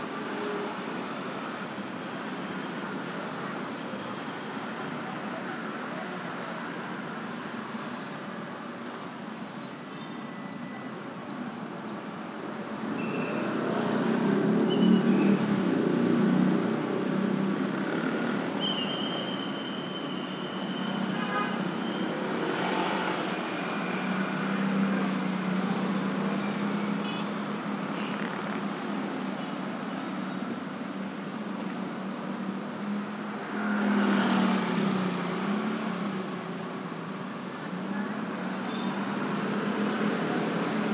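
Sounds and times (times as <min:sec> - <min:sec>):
motorbikes and cars passing: 0:12.7 - 0:18.6, 0:20.8 - 0:40.9.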